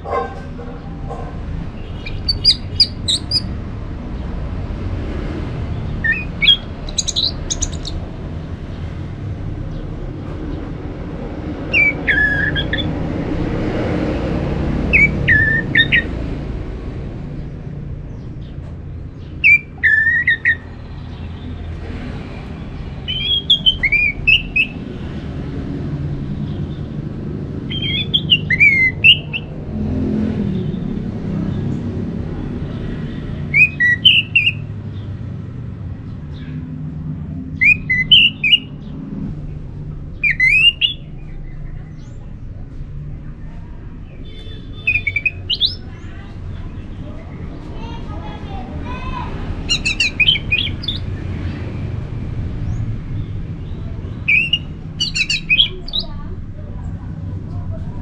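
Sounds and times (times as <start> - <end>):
thrush singing: 0.0 - 9.6, 10.5 - 17.4, 44.0 - 56.4.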